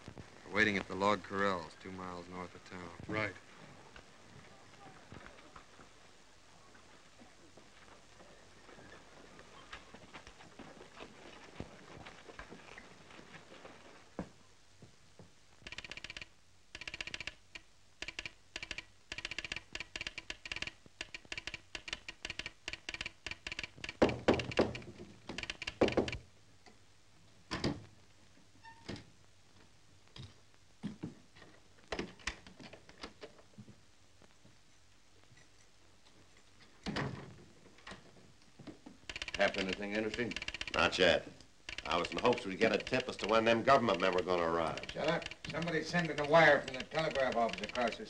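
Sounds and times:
telegraph sounder clicking: 15.6s - 26.2s, 39.1s - 48.0s.

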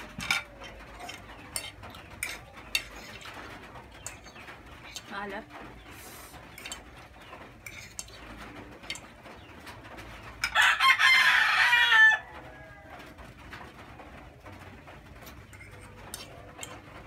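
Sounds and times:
rooster crowing: 10.5s - 13.2s.

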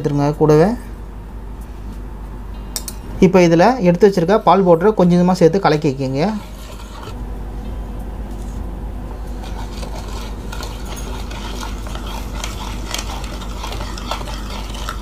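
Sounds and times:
steady low hum: 0.0s - 15.0s
whisk clinking and scraping bowl: 6.0s - 7.2s, 9.3s - 15.0s.

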